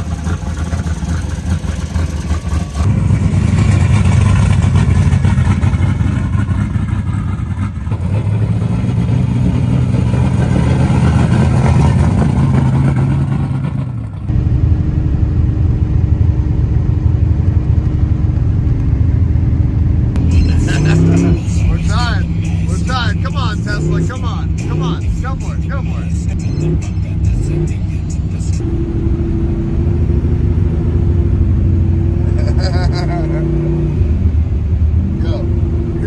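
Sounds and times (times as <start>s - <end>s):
truck engine revving: 0.0s - 36.0s.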